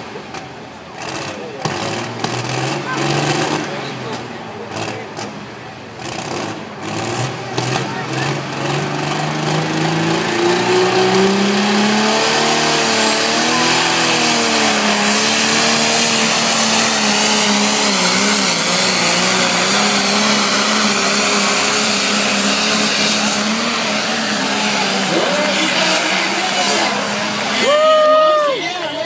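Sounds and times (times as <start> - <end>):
tractor diesel engine under load: 0.0 - 29.0.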